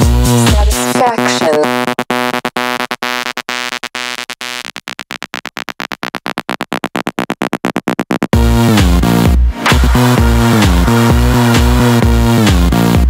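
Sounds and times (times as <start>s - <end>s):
house dance music: 0.0s - 13.0s
pulsing synth chord: 9.3s - 13.0s.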